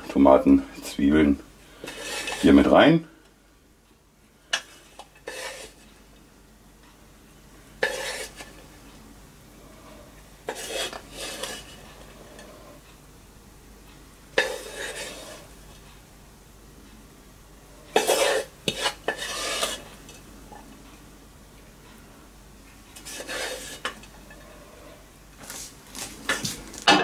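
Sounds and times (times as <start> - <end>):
wooden spoon scraping a pan: 1.7 - 2.8, 4.5 - 6.0, 7.8 - 8.7, 10.4 - 12.7, 14.4 - 15.5, 17.9 - 20.2, 23.0 - 27.0.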